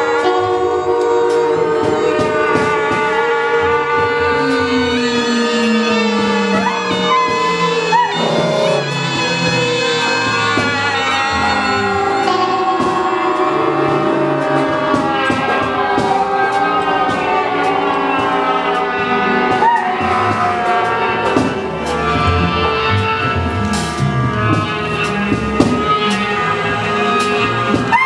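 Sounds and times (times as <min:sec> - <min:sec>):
ensemble playing held notes: 0:00.0 - 0:28.0
pitch swoop: 0:02.0 - 0:15.8.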